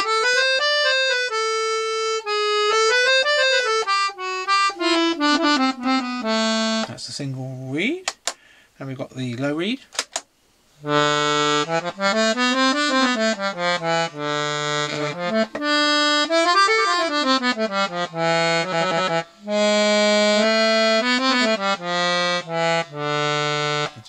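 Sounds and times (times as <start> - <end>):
accordion low reed notes: 0.0 - 8.0, 10.8 - 24.0.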